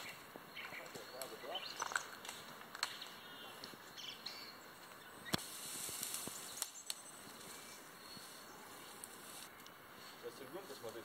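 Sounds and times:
faint hiss: 2.4 - 11.0.

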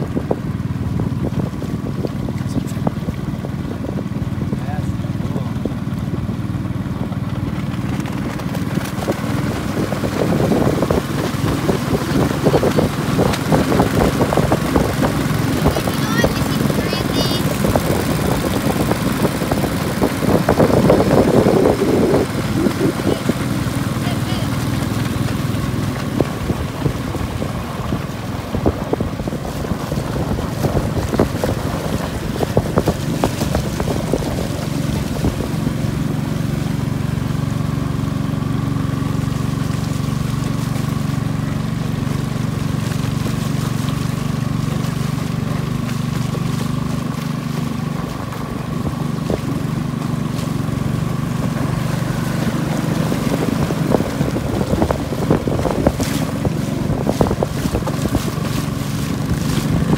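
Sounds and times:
boat engine running: 0.0 - 59.9
water rushing past hull: 0.0 - 59.9
wind on microphone: 0.0 - 59.9.

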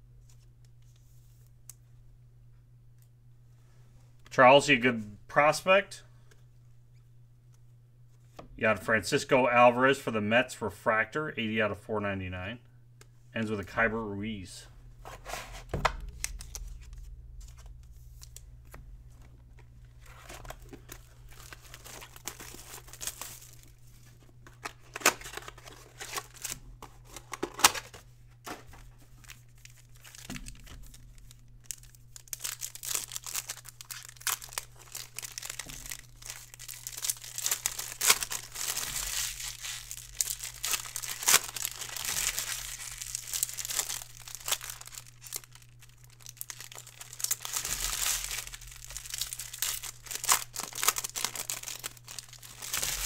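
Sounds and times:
foil wrappers crinkling: 15.0 - 53.0.

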